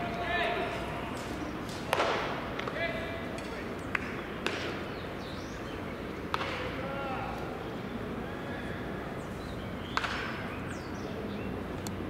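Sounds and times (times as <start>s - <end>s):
bat cracking ball: 1.9s - 2.8s, 3.4s - 4.8s, 6.3s - 6.8s, 9.9s - 10.4s.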